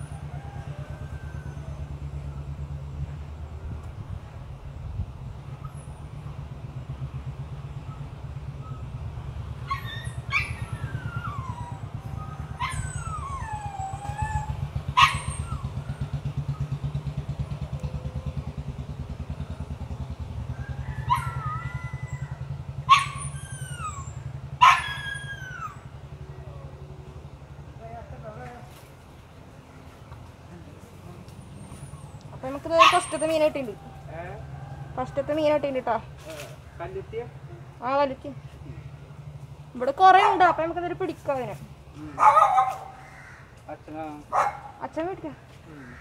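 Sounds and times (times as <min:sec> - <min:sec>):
dog barking and yelping: 0:08.7 - 0:16.7, 0:21.0 - 0:25.9, 0:32.6 - 0:33.7, 0:40.0 - 0:40.8, 0:42.1 - 0:43.2, 0:44.3 - 0:44.8.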